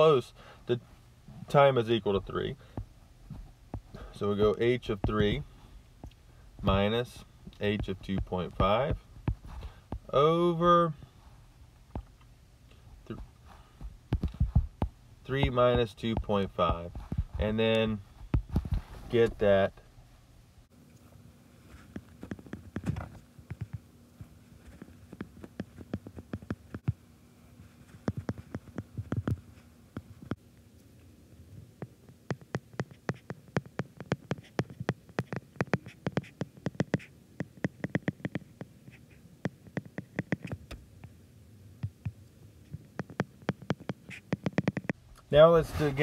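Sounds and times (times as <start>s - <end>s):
taps on a glass tablet screen: 32.3s - 38.5s, 43.0s - 45.0s.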